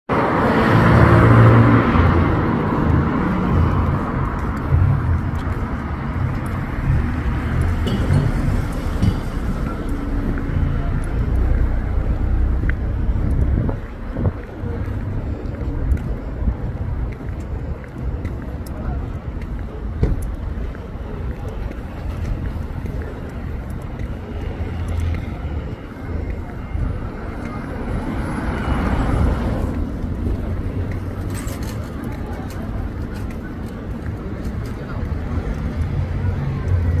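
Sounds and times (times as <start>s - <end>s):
vehicle passing close by: 0.1s - 5.3s
low rumble of engines: 0.1s - 37.0s.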